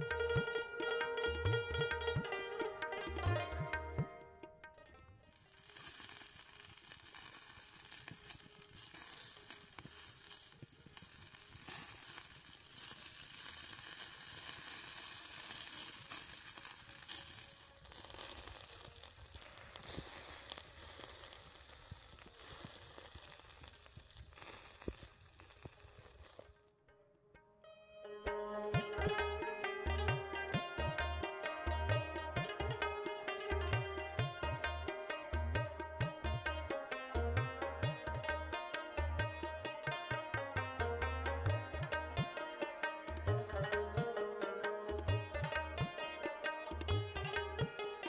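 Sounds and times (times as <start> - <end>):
chicken sizzling on charcoal grill: 5.4 - 26.6.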